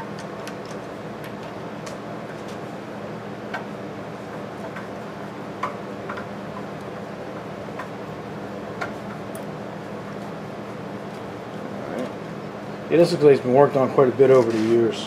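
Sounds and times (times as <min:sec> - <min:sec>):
low background hum: 0:00.0 - 0:15.0.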